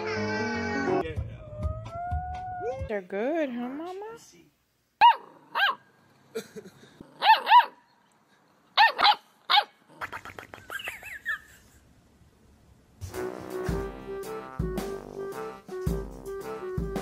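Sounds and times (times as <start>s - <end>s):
music: 0.0s - 2.9s, 13.0s - 17.0s
puppy yapping: 5.0s - 5.8s, 7.2s - 7.9s, 8.8s - 10.1s.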